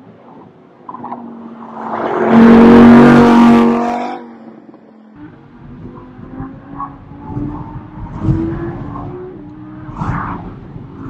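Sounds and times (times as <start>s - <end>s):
race car passing by: 1.2s - 4.6s.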